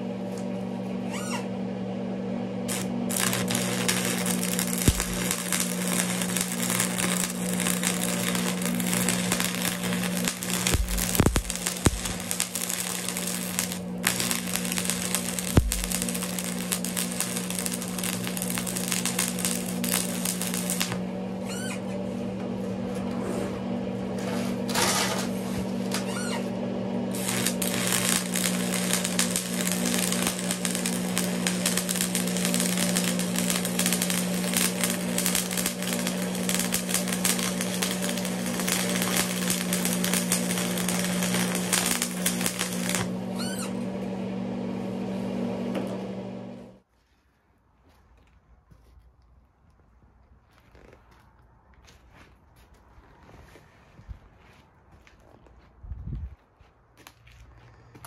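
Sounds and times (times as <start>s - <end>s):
low hum: 0.0s - 46.8s
welding arc crackling: 2.7s - 21.7s, 27.1s - 43.9s.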